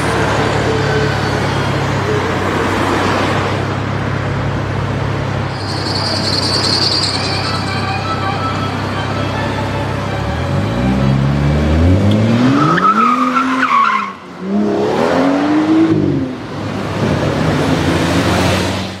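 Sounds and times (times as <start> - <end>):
tyres squealing: 5.4 - 10.9.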